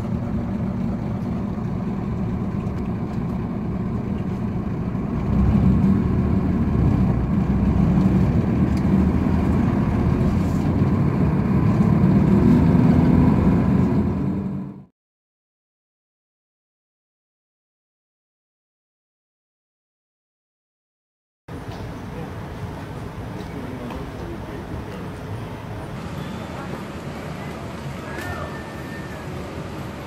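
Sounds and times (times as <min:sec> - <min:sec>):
coach bus engine rumble: 0:00.0 - 0:14.9, 0:21.5 - 0:30.0.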